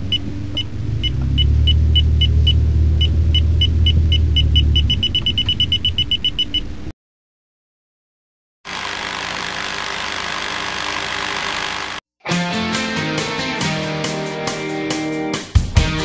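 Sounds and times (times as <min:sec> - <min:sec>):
deep rumble: 0:00.0 - 0:06.9.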